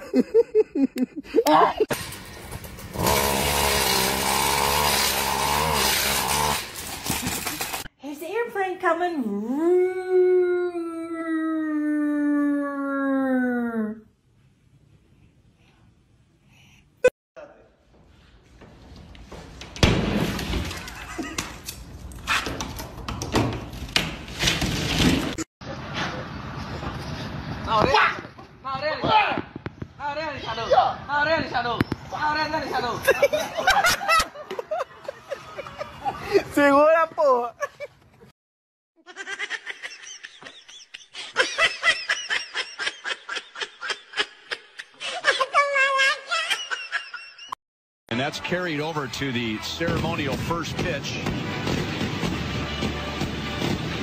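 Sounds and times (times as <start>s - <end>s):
person laughing hard: 0.0s - 1.9s, 39.1s - 47.6s.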